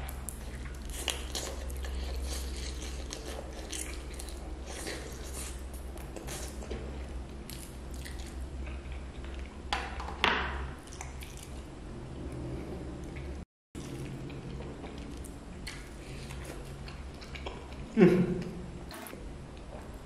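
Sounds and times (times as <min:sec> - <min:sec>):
person chewing wetly: 0:00.0 - 0:10.0, 0:10.8 - 0:11.6, 0:13.1 - 0:18.0.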